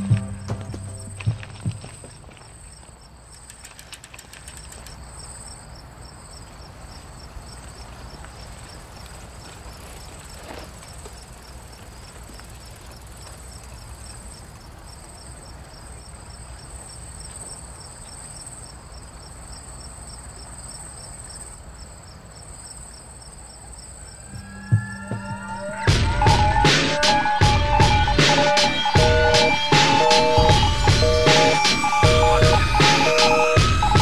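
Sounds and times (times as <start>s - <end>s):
low hum: 0.0s - 2.3s, 24.0s - 34.0s
pulsing insect chirp: 0.0s - 34.0s
insects trilling: 1.0s - 25.9s
low rumble: 24.1s - 28.2s.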